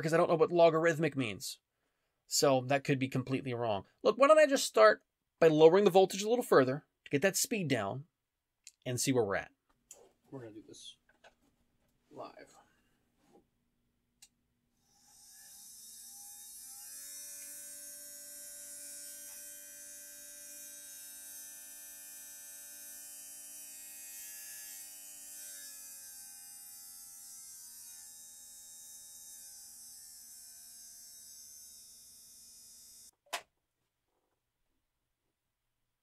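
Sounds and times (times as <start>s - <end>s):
small drill motor whining: 14.8s - 33.1s.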